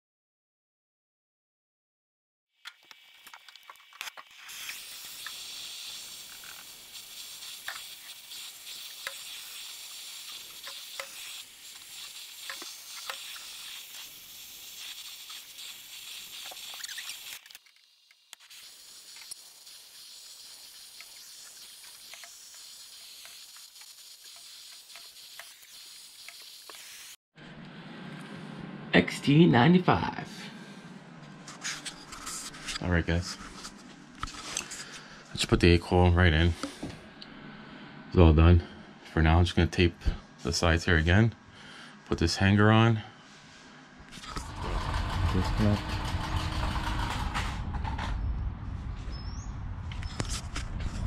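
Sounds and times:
small crackles and ticks: 2.6s - 5.4s
torch flame hissing: 3.0s - 27.2s, 44.1s - 47.6s.

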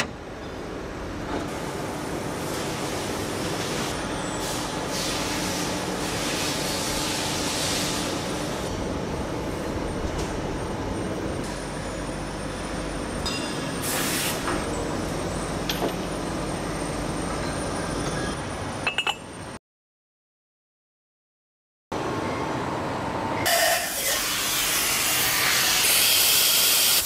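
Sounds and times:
machinery hum and hiss: 0.0s - 19.6s, 22.0s - 27.0s.

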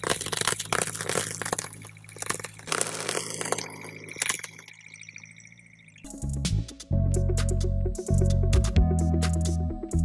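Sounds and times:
tyre crushing puffed rice balls: 0.0s - 3.6s.

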